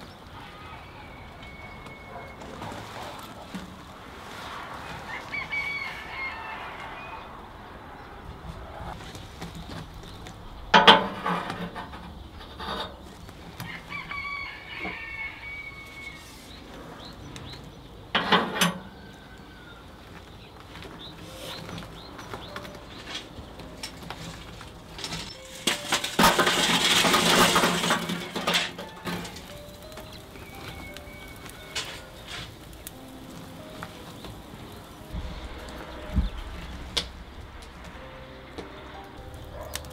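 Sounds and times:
hot coals clattering onto steel: 0.0 - 7.2, 7.9 - 39.9
metal clanks from smoker: 10.7 - 13.3, 18.1 - 19.2, 21.5 - 34.3.

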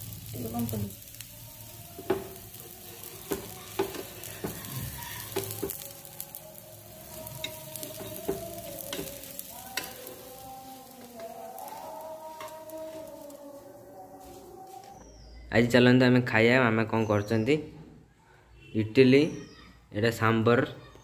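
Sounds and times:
pancake sizzling on griddle: 0.0 - 14.9.

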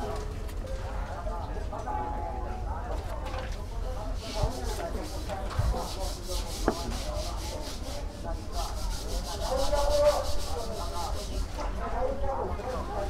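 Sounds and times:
rhythmic rubbing and scraping: 4.1 - 11.6.

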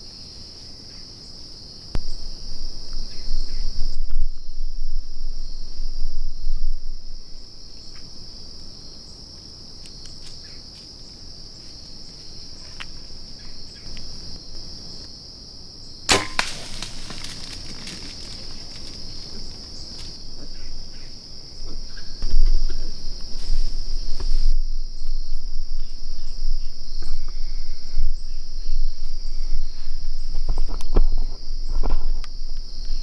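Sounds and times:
crickets chirping: 0.0 - 33.0
microphone handling rumble: 2.0 - 7.4, 21.8 - 32.6
sharp crack with ringing tail: 16.1 - 17.4.

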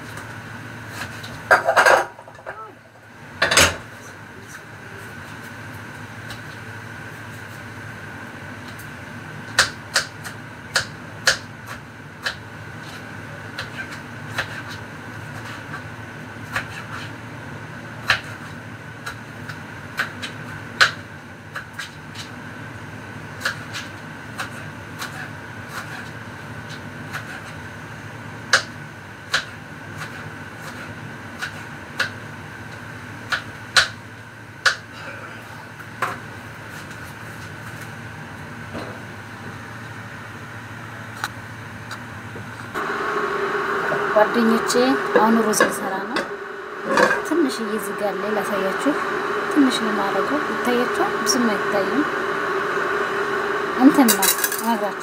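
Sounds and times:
steady hum: 42.3 - 55.0.

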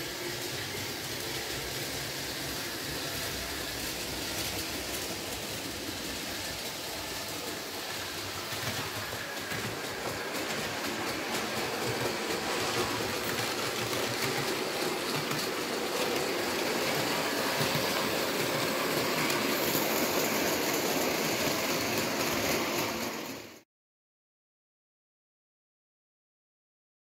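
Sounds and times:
model train wheels clattering: 3.1 - 23.0.

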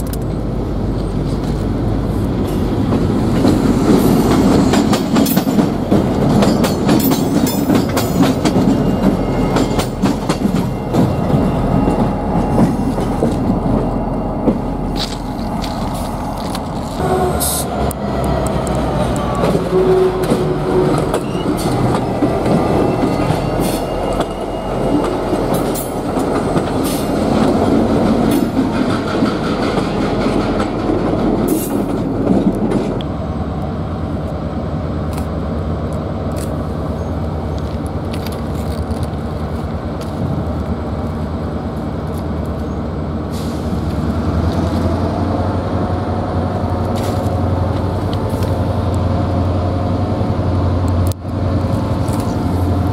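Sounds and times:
train wheels clicking over rail joints: 0.0 - 33.7
diesel locomotive engine drone: 0.0 - 52.9.

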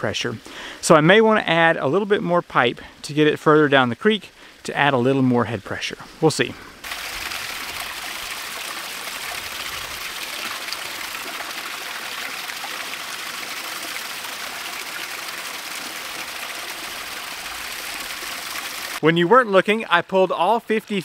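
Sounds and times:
water gushing into bucket: 6.8 - 19.0.

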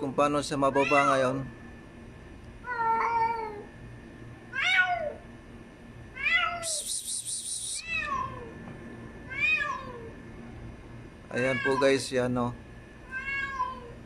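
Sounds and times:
high rapidly pulsing rattle: 6.8 - 7.9
kitten meowing: 13.1 - 13.9.

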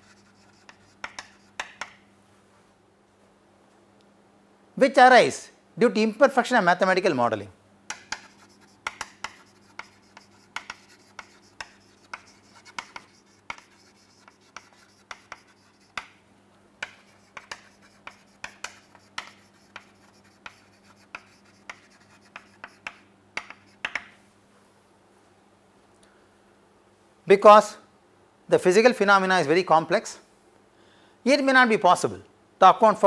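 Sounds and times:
chalk writing on chalkboard: 0.0 - 2.0, 7.9 - 16.2, 16.8 - 24.1.

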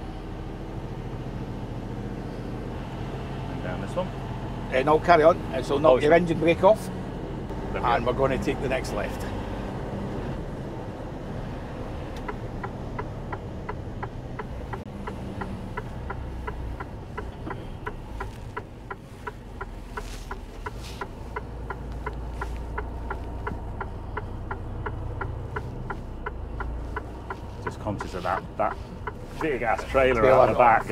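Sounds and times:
low engine and road drone: 0.0 - 30.9
turn indicator ticking: 11.6 - 30.9.

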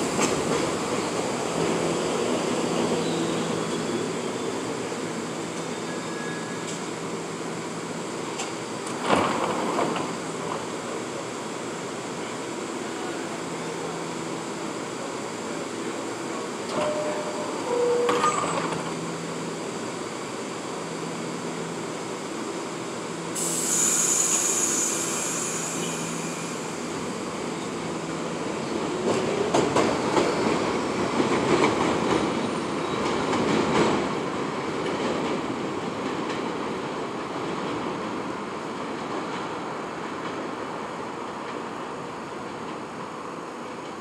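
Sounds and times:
subway train equipment hum: 0.0 - 44.0
loud hiss of air: 23.2 - 27.5.

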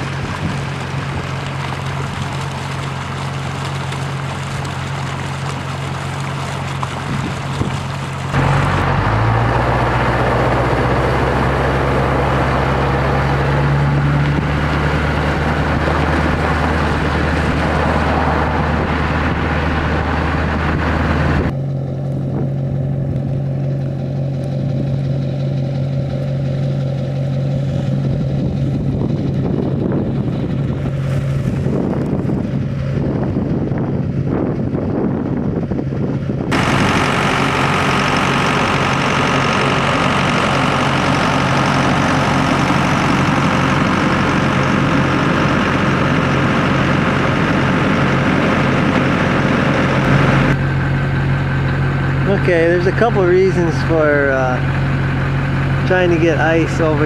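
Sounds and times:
engine humming: 0.0 - 57.0
rushing noise: 7.2 - 21.6, 35.8 - 57.0.

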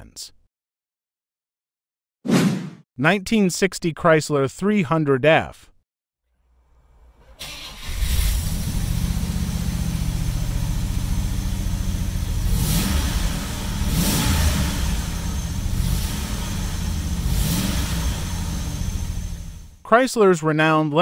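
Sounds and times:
car engine starting and idling: 6.4 - 19.8.

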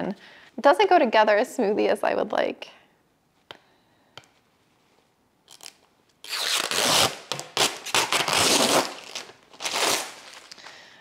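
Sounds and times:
protective film ripping: 5.5 - 10.7.

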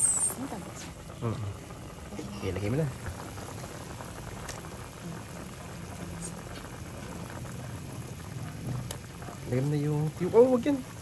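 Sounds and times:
pot of water boiling: 0.0 - 11.0.

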